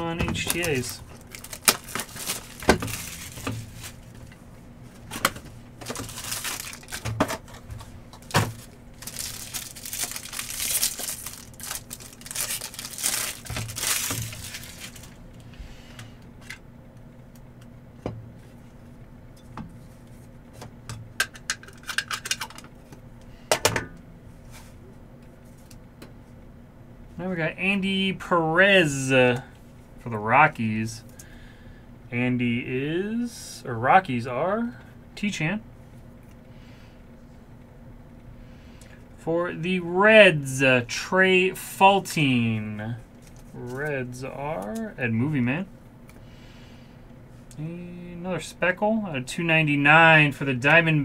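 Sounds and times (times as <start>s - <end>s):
foil wrappers crinkling: 0.0s - 4.3s, 5.0s - 15.3s
card packs tearing open: 0.3s - 4.0s, 5.8s - 7.4s, 8.2s - 15.2s.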